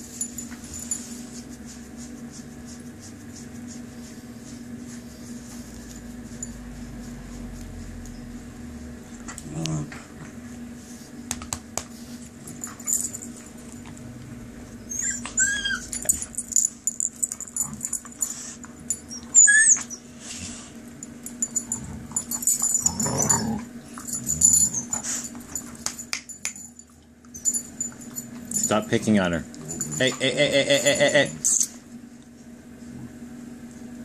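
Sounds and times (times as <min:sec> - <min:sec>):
dog growling: 0:09.3 - 0:10.1, 0:21.7 - 0:24.9
collar tags clinking: 0:12.3 - 0:14.1, 0:14.9 - 0:19.7, 0:20.9 - 0:31.8
puppies yelping: 0:14.8 - 0:16.1, 0:19.1 - 0:20.2.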